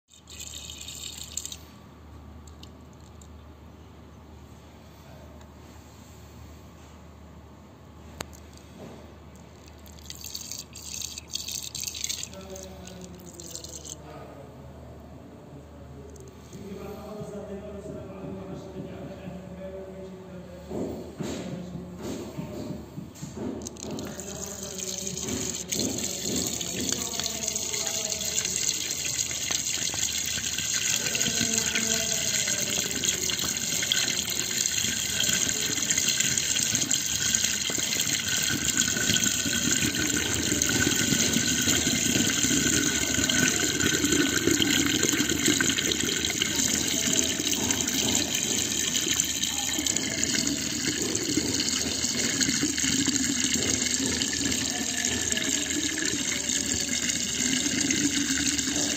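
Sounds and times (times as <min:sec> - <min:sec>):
water gurgling down drain: 0:09.8 - 0:14.0, 0:23.7 - 0:58.9.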